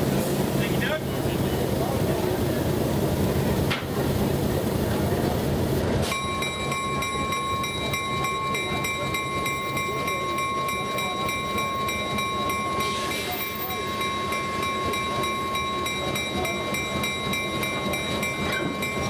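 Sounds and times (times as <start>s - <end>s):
diesel locomotive engine running: 0.0s - 19.0s
steady high-pitched tones: 6.1s - 19.0s.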